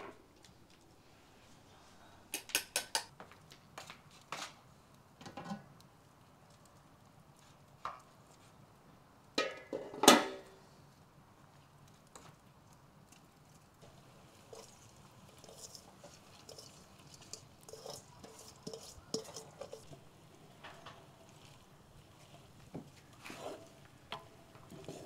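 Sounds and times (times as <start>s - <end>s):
metal bowls and pot clinking: 13.8s - 21.5s.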